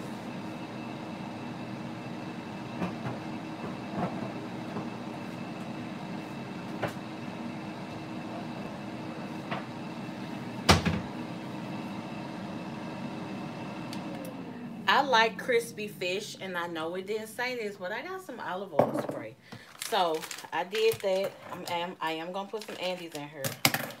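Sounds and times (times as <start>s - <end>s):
steady hum: 0.0s - 24.0s
kitchen knocks and clatter: 18.8s - 19.2s.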